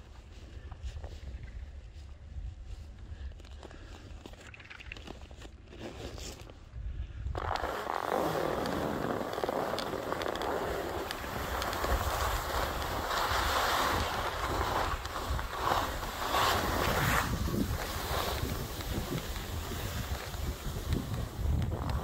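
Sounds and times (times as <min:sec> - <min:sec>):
skis scraping over snow: 0:07.4 - 0:22.0
wind buffeting microphone: 0:10.0 - 0:22.0.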